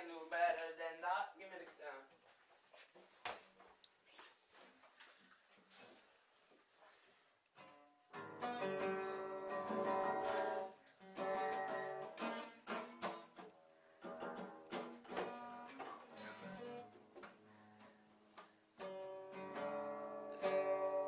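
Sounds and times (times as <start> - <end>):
strummed acoustic guitar chords: 7.6 - 18.0, 18.8 - 21.0.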